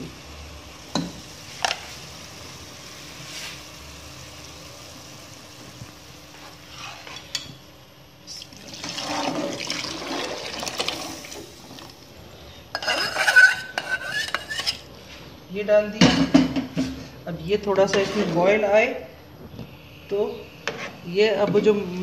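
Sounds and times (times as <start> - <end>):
hot liquid pouring between pans: 8.4 - 12.1.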